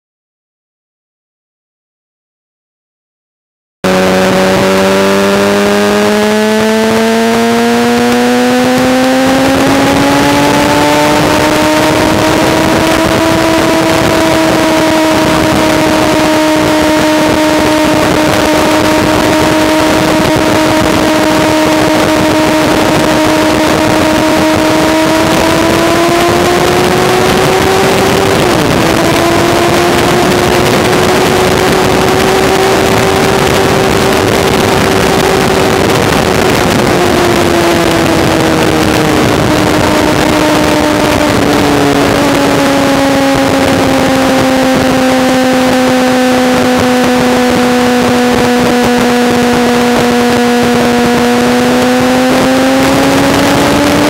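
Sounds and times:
motorcycle engine at high revs: 3.8s - 54.0s
wind rushing over microphone: 3.8s - 54.0s.

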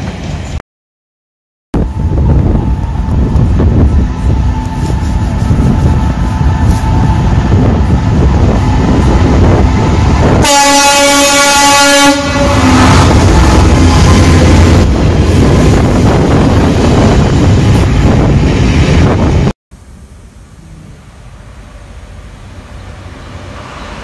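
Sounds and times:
diesel locomotive engine rumbling: 0.0s - 0.6s, 1.8s - 24.0s
train horn: 4.0s - 7.2s, 10.3s - 14.6s.

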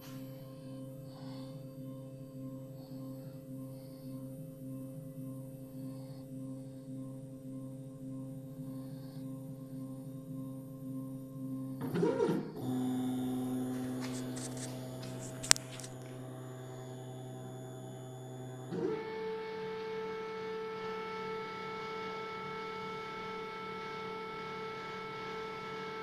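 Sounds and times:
stepper motors whining: 11.8s - 20.0s.

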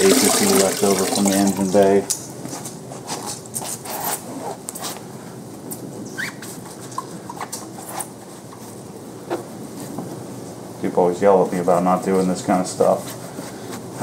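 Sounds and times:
rubber squeaks: 6.1s - 6.6s.

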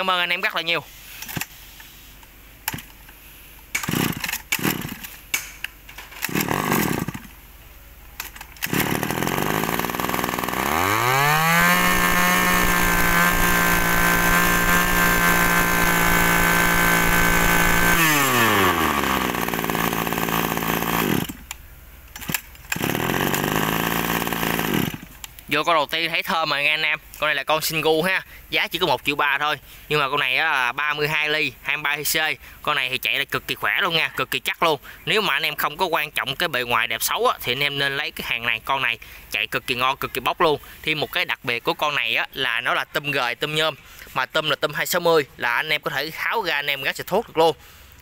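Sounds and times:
small two-stroke engine revving: 3.8s - 5.0s, 6.2s - 7.3s, 8.6s - 21.4s, 22.7s - 25.1s.

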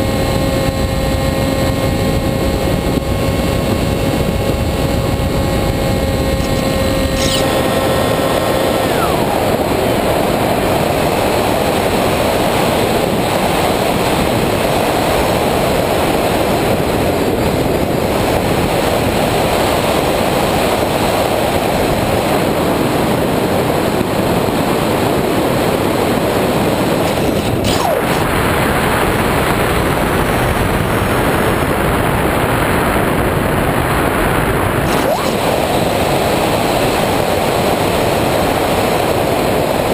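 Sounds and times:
electric motor and propeller whine: 0.0s - 39.9s
wind rushing over microphone: 0.0s - 39.9s.

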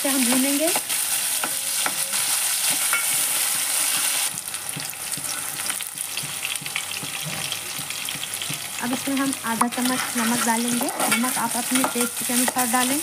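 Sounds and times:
onions sizzling in hot oil: 0.0s - 13.0s
spatula scraping pot: 9.6s - 12.7s.

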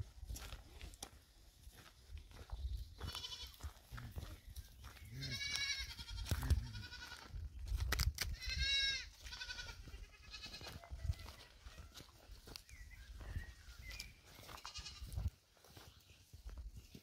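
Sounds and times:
goats bleating: 3.0s - 3.7s, 5.1s - 7.3s, 8.4s - 10.9s, 14.6s - 15.2s.

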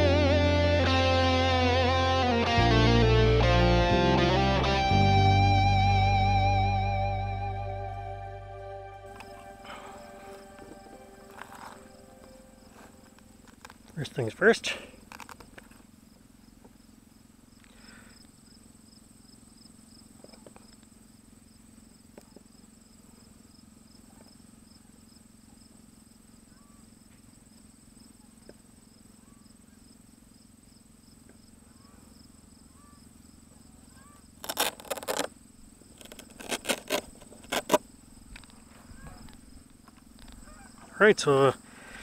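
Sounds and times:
insect trilling: 9.1s - 15.8s, 16.8s - 42.0s.

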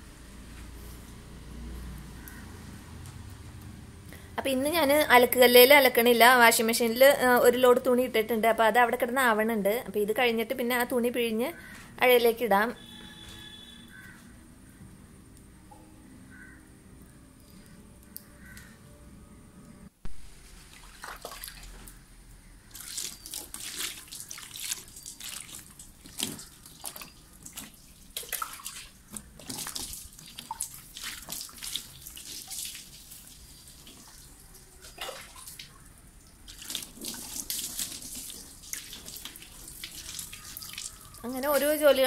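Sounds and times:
water splashing on plastic: 20.3s - 22.0s, 22.7s - 42.0s.

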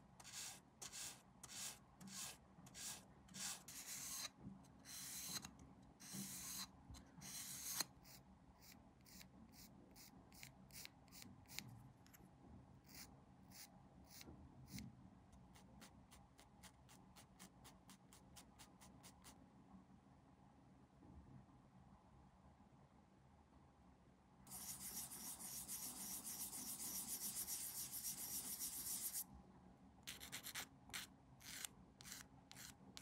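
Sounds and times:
hand sanding plastic part: 0.2s - 4.3s, 24.5s - 29.2s.

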